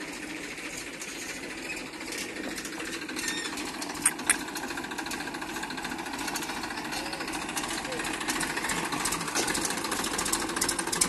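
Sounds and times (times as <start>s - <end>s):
diesel engine knocking: 0.0s - 11.0s
sharp clicks: 3.9s - 4.6s.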